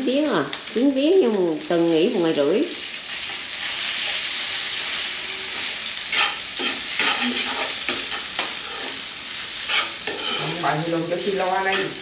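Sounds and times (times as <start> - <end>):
rice sizzling in oil: 0.0 - 12.0
spatula scraping a pan: 3.2 - 12.0.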